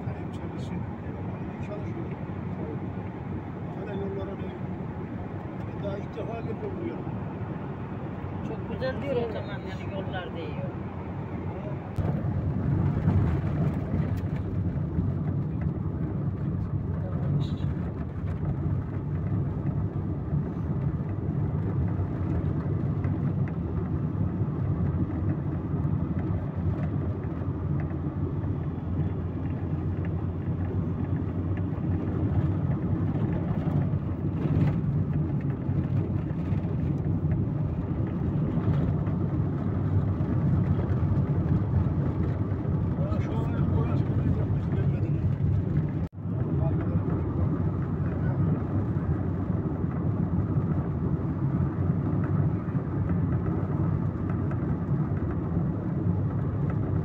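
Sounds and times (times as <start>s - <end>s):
vehicle cabin road drone: 0.0s - 57.0s.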